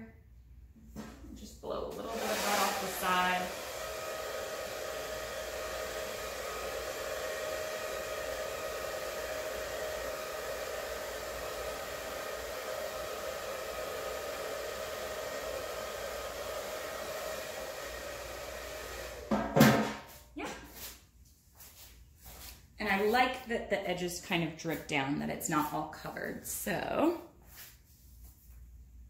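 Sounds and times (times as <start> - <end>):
hair dryer running: 1.7 - 19.8
loud knock: 19.3 - 20.0.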